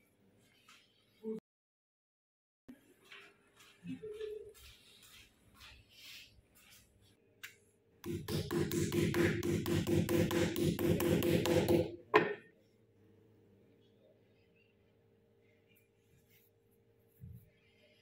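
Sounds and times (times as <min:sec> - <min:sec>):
mallet pounding meat on wood: 0:08.0 - 0:12.4.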